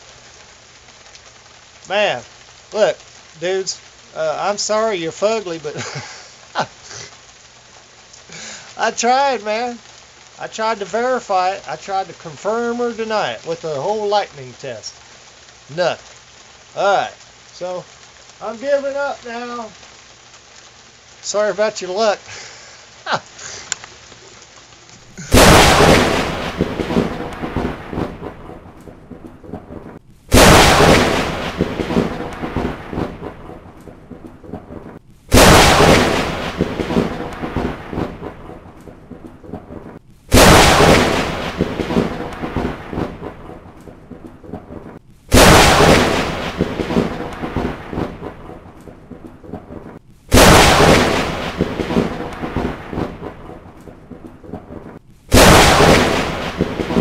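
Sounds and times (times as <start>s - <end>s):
thunderclaps: 25.2s - 57.0s.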